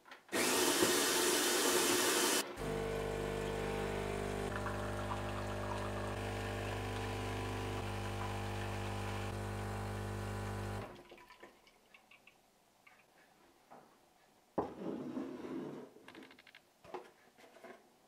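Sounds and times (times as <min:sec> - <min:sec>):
coffee machine pump humming: 0:00.4 - 0:10.9
faint drips and ticks: 0:11.0 - 0:13.3.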